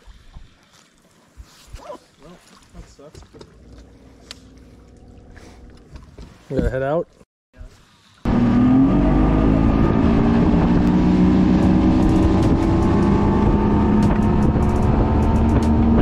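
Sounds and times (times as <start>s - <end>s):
outboard motor running: 3.3s - 6.2s, 8.2s - 16.0s.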